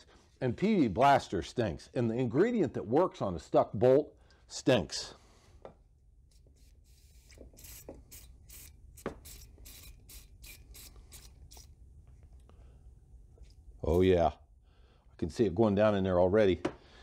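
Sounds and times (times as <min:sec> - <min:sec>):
faint scratchy hissing strokes: 0:06.3 - 0:11.8.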